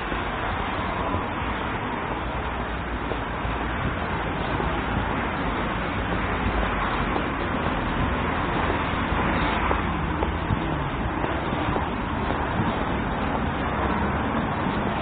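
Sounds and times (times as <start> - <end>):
road traffic hiss and rumble: 0.0 - 15.0.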